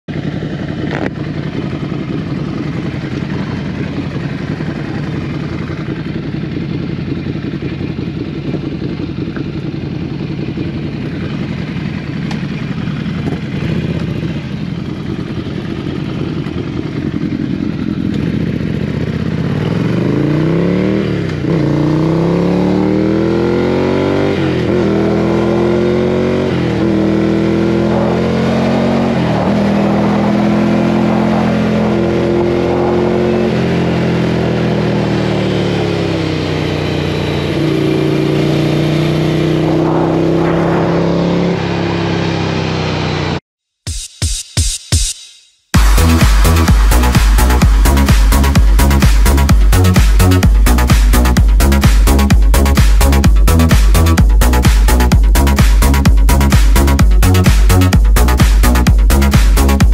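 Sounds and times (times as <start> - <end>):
motorcycle engine accelerating: 0.0 - 43.4, 45.7 - 59.9.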